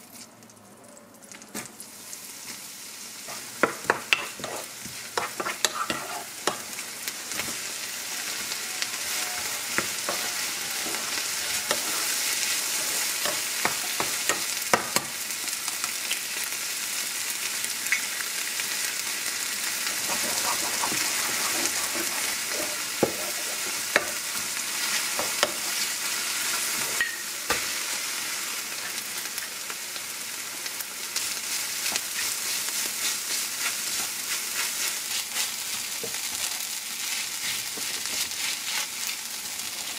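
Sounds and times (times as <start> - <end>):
food sizzling in oil: 1.5 - 39.9
wooden spoon scraping pan: 3.3 - 6.7, 19.9 - 24.2.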